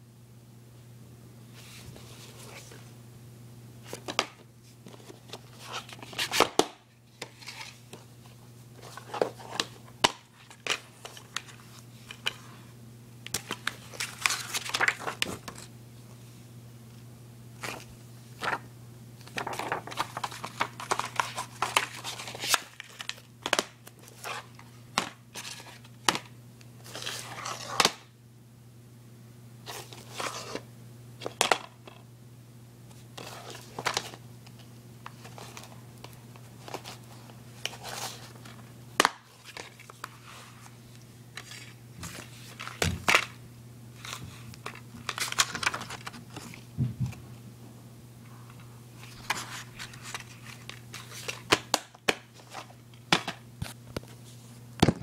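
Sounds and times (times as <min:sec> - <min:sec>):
steady low hum: 0:00.0 - 0:55.0
paper and plastic rustling: 0:07.1 - 0:12.5, 0:13.4 - 0:15.7, 0:17.6 - 0:18.6, 0:19.2 - 0:26.2, 0:33.2 - 0:43.3, 0:44.0 - 0:47.0, 0:49.0 - 0:54.6.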